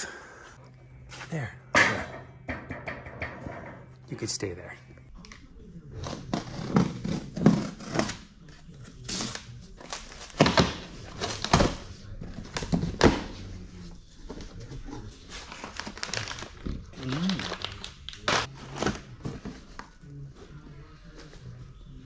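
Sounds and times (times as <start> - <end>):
packing paper rustling: 15.2 - 19.1.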